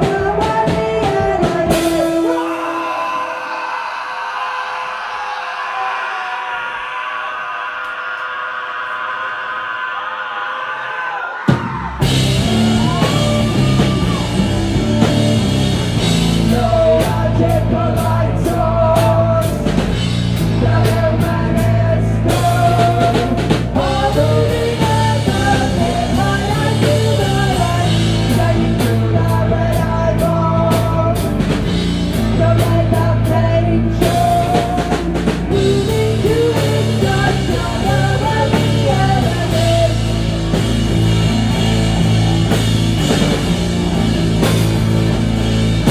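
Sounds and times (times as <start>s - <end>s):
woman singing: 0.0s - 2.8s, 16.5s - 19.5s, 20.6s - 31.3s, 32.2s - 40.1s
drum kit with crashing cymbals: 11.5s - 21.7s, 34.0s - 45.9s
electric guitar: 12.0s - 45.9s.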